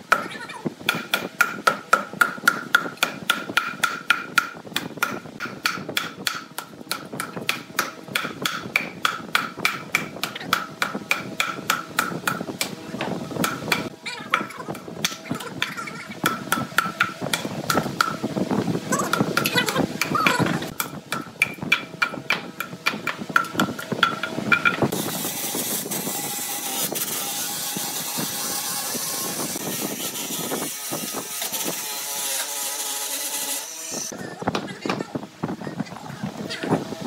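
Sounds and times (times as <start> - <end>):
wooden mallet striking log: 0.9 - 12.7.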